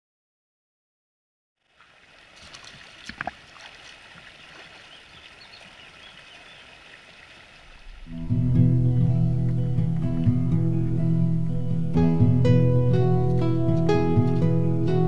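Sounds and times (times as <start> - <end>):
stream flowing over stones: 1.6 - 8.3
feet splashing through water: 1.7 - 8.1
acoustic guitar music: 8.0 - 15.0.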